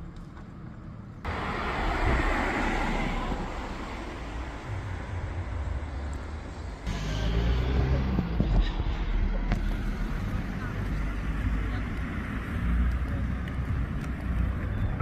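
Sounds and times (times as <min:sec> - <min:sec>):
low traffic rumble: 0:00.0 - 0:15.0
car passing: 0:01.2 - 0:15.0.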